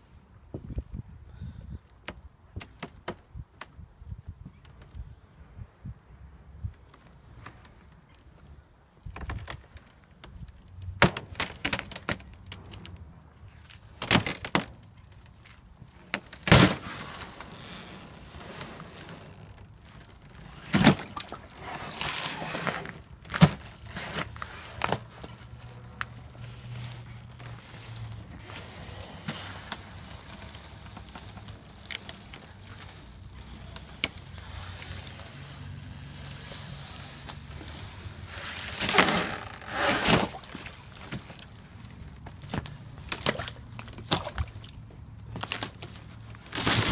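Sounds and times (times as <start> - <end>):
ice scraping: 16.2 - 44.6, 45.4 - 46.9.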